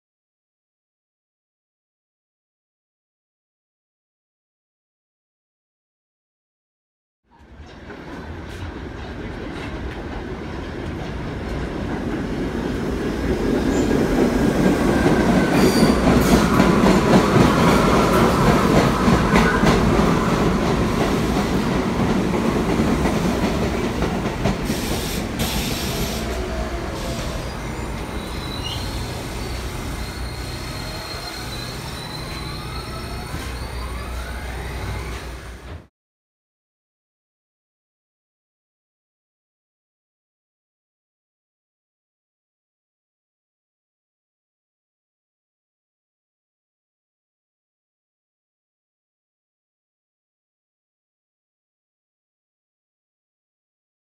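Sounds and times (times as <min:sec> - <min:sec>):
train wheels rumbling on rails: 0:07.4 - 0:35.9
wheels squealing: 0:15.3 - 0:19.8, 0:24.7 - 0:35.8.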